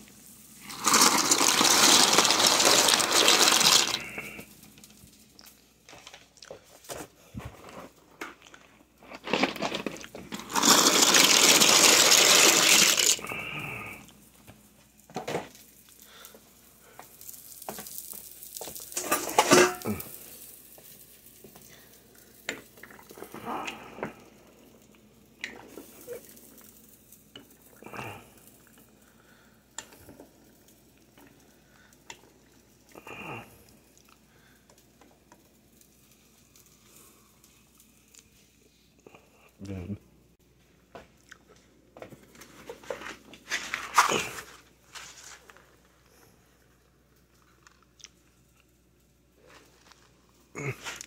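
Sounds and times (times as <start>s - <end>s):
wooden spoon stirring pasta: 0.6s - 4.2s
pots and utensils clinking: 18.6s - 20.2s.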